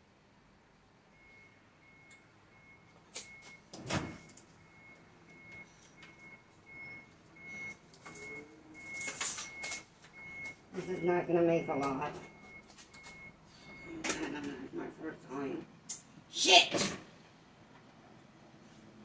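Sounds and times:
faint high-pitched beeping: 0:01.1 - 0:14.4.

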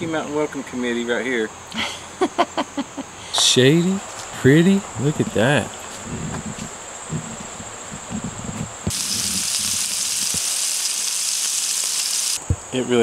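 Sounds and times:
high insect trill: 0:00.4 - 0:13.0
burger patties sizzling on griddle: 0:08.9 - 0:12.4.

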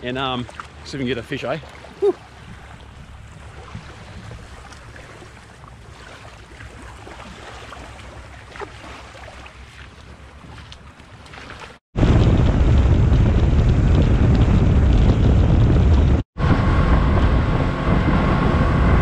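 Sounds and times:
water lapping at shore: 0:00.0 - 0:11.9
wind buffeting microphone: 0:02.0 - 0:05.9, 0:12.0 - 0:19.0.

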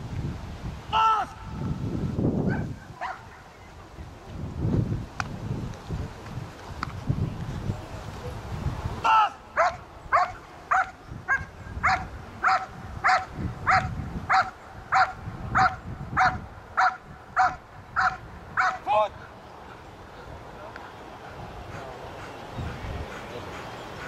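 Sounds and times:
dog barking rhythmically: 0:09.6 - 0:18.8.

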